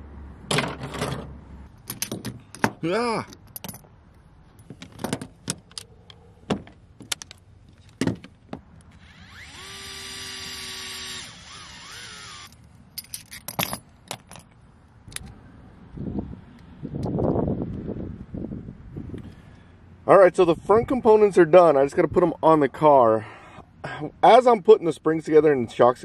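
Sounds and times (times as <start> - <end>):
small metal tools clinking: 1.8 - 3.9, 12.5 - 14.6
electric screwdriver whirring: 9.0 - 12.6.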